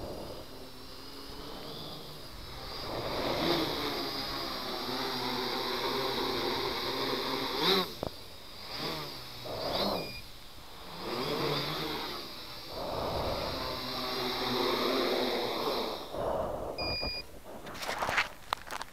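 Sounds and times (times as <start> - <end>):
quadcopter motors whining: 0.0 - 18.9
electronic beep: 10.0 - 10.3, 16.8 - 17.3.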